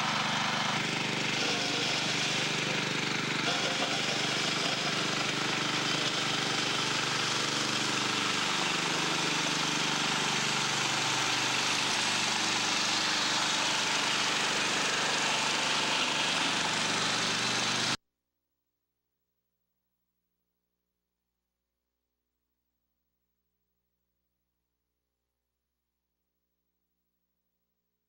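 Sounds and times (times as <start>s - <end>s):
garden tractor engine running: 0.0s - 18.0s.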